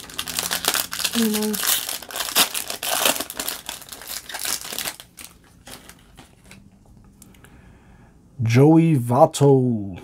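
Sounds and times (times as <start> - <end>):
foil wrapper crinkling: 0.0 - 6.7.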